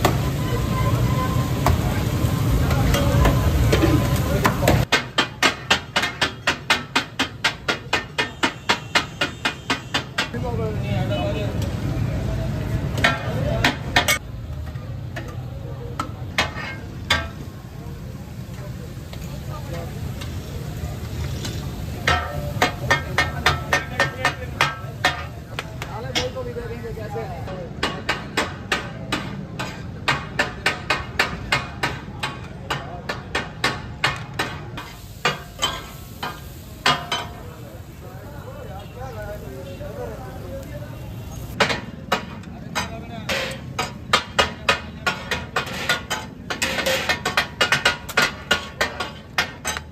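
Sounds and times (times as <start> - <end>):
frying: 0.0 - 49.9
metal spatulas clanging on griddle: 2.7 - 10.4, 12.9 - 17.6, 21.3 - 26.8, 27.4 - 37.8, 41.5 - 49.9.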